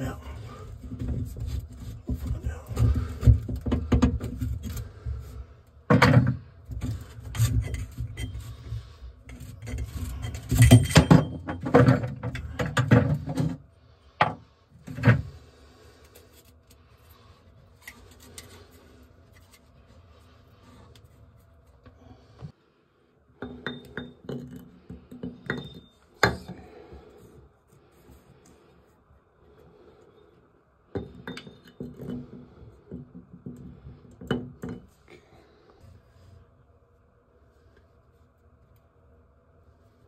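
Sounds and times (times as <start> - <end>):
metal drain parts scraping and clunking: 5.9 - 13.6.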